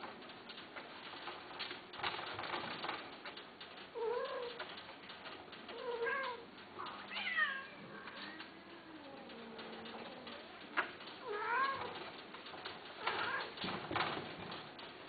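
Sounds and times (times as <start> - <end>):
cat meowing: 7.1 - 8.4.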